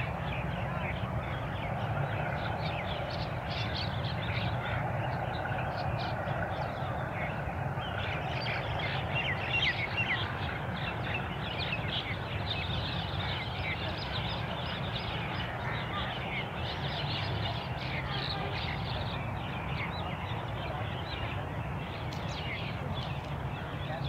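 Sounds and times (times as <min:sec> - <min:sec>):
flock of birds chirping: 0:00.0 - 0:24.0
steady low rumble: 0:00.0 - 0:24.0.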